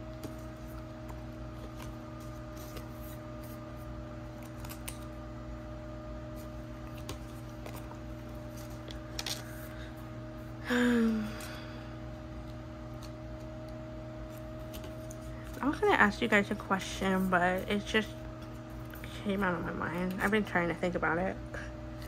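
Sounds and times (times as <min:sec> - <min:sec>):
low electrical hum: 0:00.0 - 0:22.0
cards and plastic sleeves rustling: 0:00.1 - 0:05.2, 0:06.3 - 0:10.0, 0:14.2 - 0:15.9.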